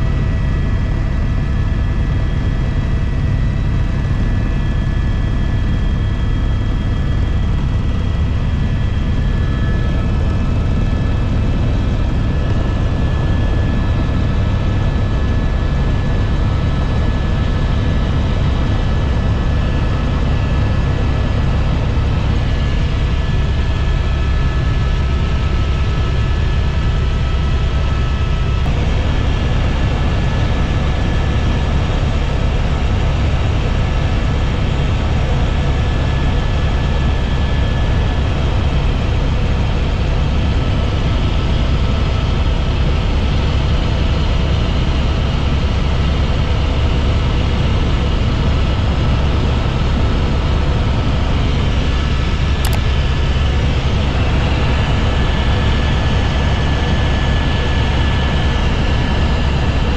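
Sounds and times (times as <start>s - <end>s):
faint high whine: 0.0s - 40.1s
helicopter rotor and engine drone: 0.0s - 59.9s.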